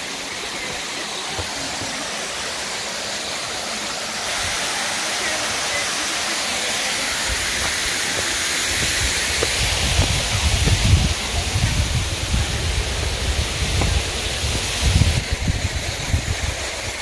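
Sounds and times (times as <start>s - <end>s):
water pouring over spillway: 0.0s - 17.0s
low rumbles on microphone: 9.6s - 16.6s.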